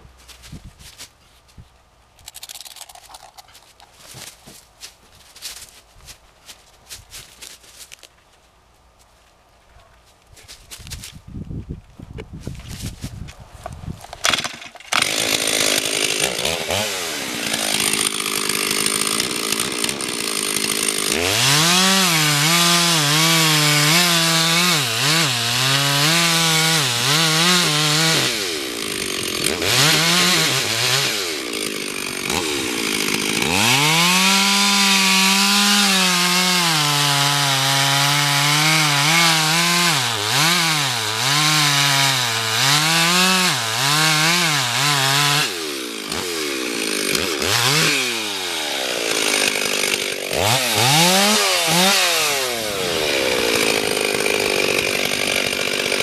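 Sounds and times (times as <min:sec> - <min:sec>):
chainsaw cutting wood: 0:14.0 - 0:56.0.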